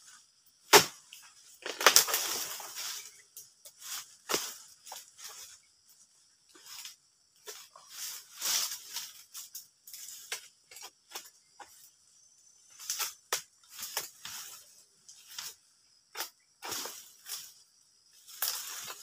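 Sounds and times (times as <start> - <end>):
fronds cracking: 0.7 - 3.1, 18.3 - 19.0
sickle rasping strokes: 6.5 - 11.8.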